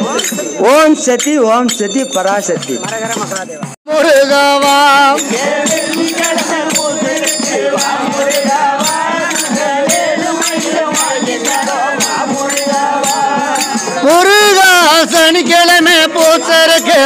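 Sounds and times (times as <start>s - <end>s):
frame drum beat: 0.0s - 17.0s
jingling percussion: 0.0s - 17.0s
men singing devotional song: 3.9s - 17.0s.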